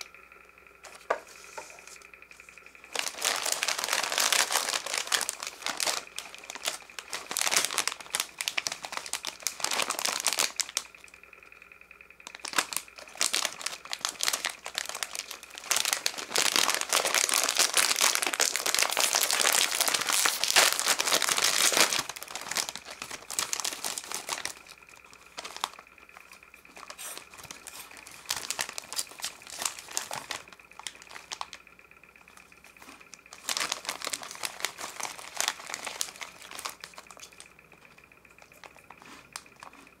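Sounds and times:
faint high whine: 0:00.0 - 0:40.0
plastic wrappers crinkling: 0:00.9 - 0:11.1, 0:12.2 - 0:31.6, 0:32.8 - 0:39.8.

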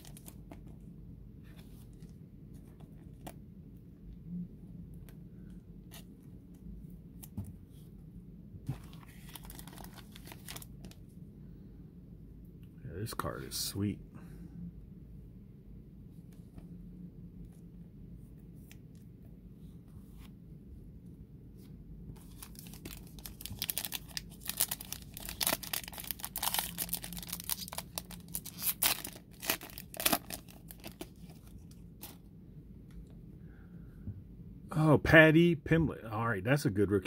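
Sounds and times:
foil wrapper tearing: 0:22.4 - 0:31.2.

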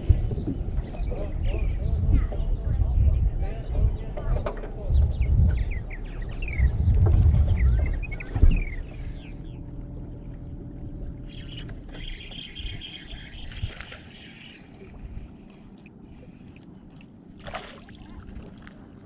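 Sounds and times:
low rumble: 0:00.0 - 0:19.0
fish splashing in water: 0:13.4 - 0:18.9.

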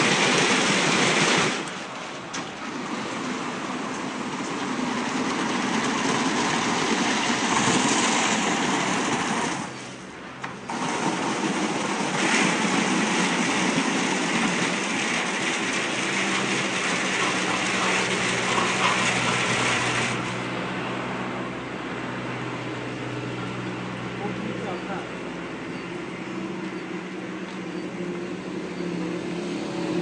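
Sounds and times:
car wash machine rushing: 0:00.0 - 0:30.0
low motor hum: 0:00.0 - 0:30.0.

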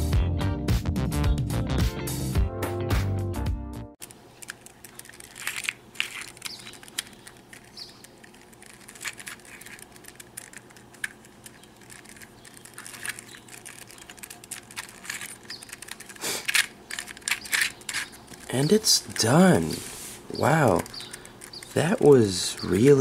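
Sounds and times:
puzzle cube clicking: 0:04.0 - 0:19.8, 0:20.4 - 0:23.0.

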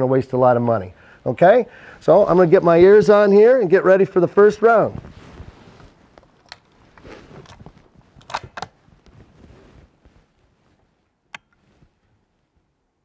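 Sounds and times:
handling noise: 0:04.9 - 0:12.2.

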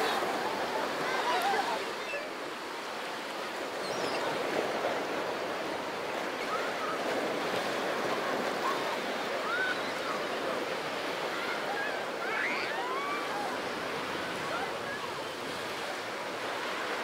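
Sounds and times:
waves washing onto pebbles: 0:00.0 - 0:02.0.

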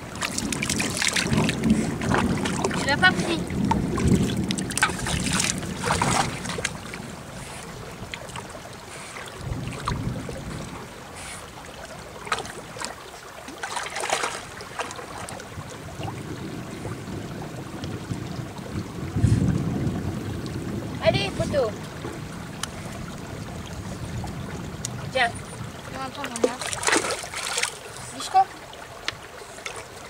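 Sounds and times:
dog splashing in stream: 0:00.0 - 0:16.2, 0:25.9 - 0:30.0
water running: 0:00.0 - 0:16.5, 0:21.0 - 0:30.0.

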